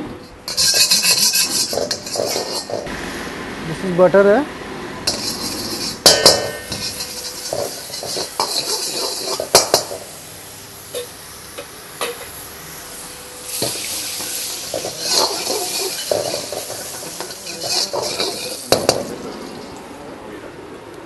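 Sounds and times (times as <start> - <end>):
butter sizzling in a wok: 0.5 - 2.9, 5.1 - 19.8
metal ladle clanking on pan: 0.5 - 2.9, 5.1 - 10.1, 13.6 - 19.7.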